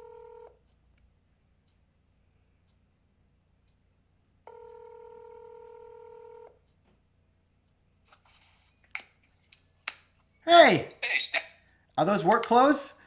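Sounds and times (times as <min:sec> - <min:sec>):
phone ringback tone: 0:00.0 - 0:00.6, 0:04.5 - 0:06.6.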